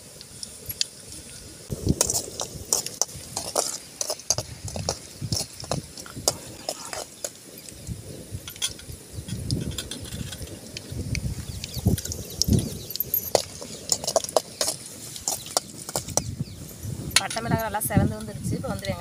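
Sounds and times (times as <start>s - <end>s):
oil sizzling: 0.0s - 17.9s
metal spoon scraping a pan: 2.0s - 7.4s, 11.9s - 16.3s.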